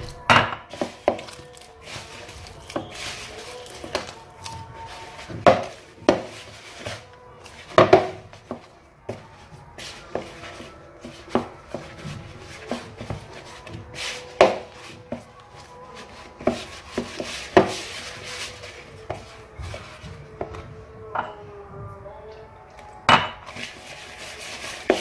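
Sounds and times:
dough rubbing: 0:00.0 - 0:21.0, 0:23.4 - 0:25.0
dough knocking against bowl: 0:05.2 - 0:06.6, 0:07.7 - 0:09.2, 0:14.4 - 0:15.3, 0:16.4 - 0:17.9.

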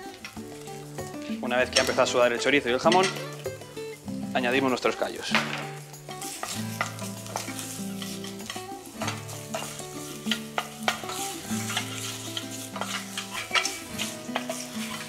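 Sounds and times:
food frying in oil: 0:00.0 - 0:15.0
spoon knocking against pan: 0:09.0 - 0:12.0.

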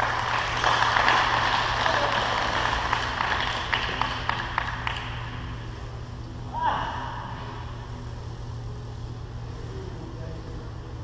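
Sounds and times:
people clapping: 0:00.0 - 0:05.5.

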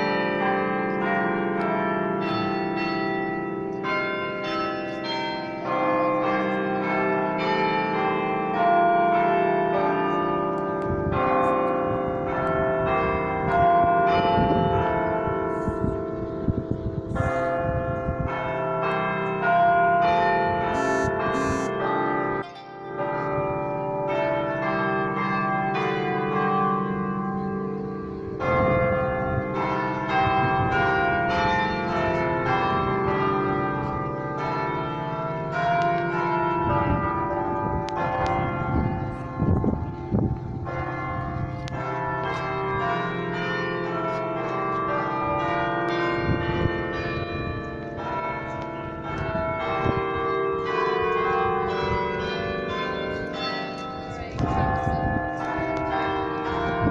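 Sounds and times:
carillon bells playing a tune: 0:00.0 - 0:23.5.

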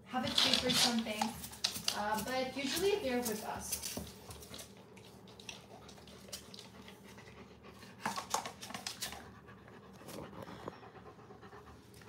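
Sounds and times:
dog panting: 0:04.2 - 0:12.0.

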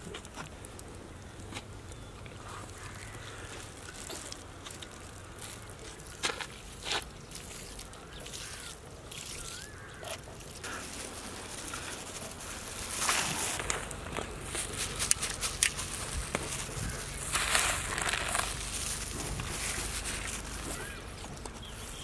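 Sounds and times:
outdoor background: 0:00.0 - 0:22.0
leaves patter on rice: 0:10.5 - 0:22.0.

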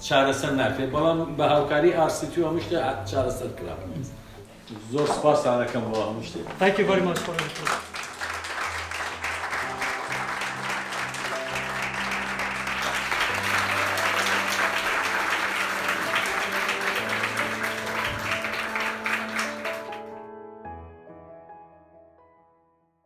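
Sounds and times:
music of held notes: 0:00.3 - 0:20.2
audience applauding: 0:04.9 - 0:20.2.

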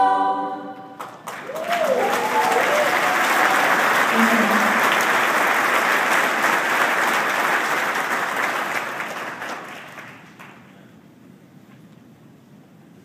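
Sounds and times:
audience applauding: 0:01.0 - 0:10.8.

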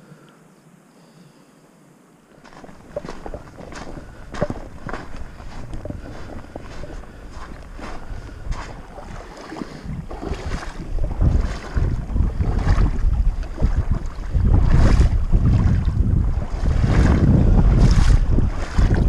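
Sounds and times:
wind buffeting microphone: 0:02.4 - 0:19.0.

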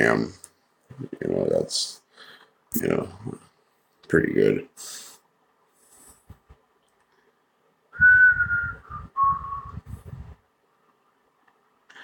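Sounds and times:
person whistling held notes: 0:08.0 - 0:09.9.

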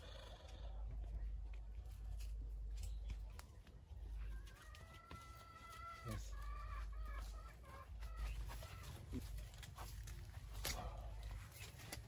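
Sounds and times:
rooster crowing: 0:04.4 - 0:06.9.

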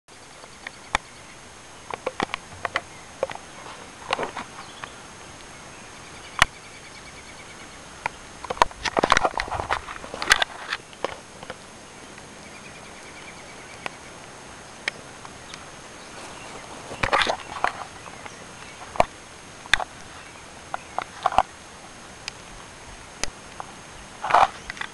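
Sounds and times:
scuffs and rustles on gravel: 0:03.3 - 0:05.0, 0:08.6 - 0:11.4, 0:15.0 - 0:19.1.

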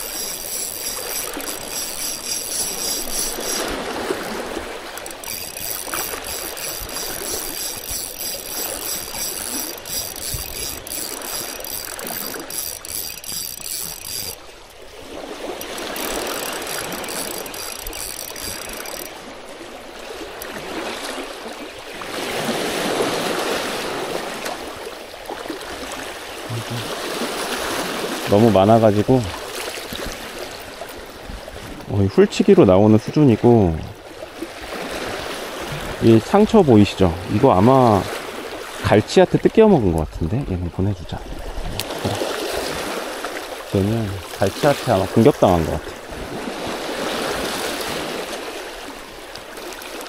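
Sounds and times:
fishing reel whirring: 0:00.0 - 0:19.6
sea water washing against rocks: 0:00.0 - 0:28.3.

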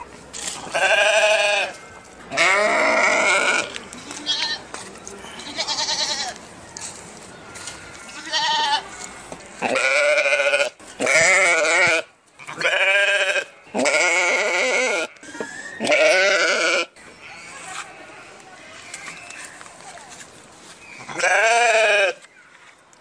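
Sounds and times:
sheep bleating: 0:00.6 - 0:04.6, 0:05.4 - 0:06.4, 0:07.6 - 0:08.8, 0:09.6 - 0:17.6, 0:21.1 - 0:22.2.

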